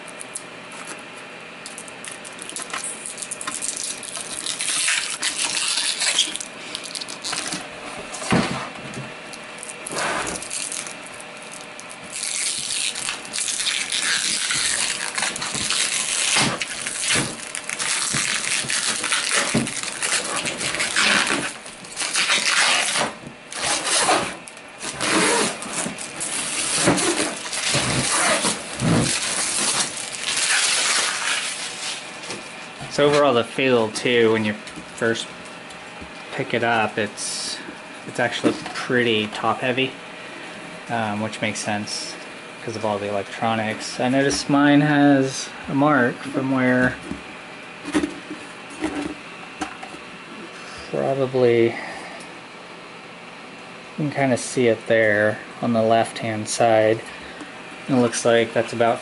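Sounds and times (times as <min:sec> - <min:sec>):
plastic film peeling and crinkling: 0:01.7 - 0:07.7, 0:09.6 - 0:32.5.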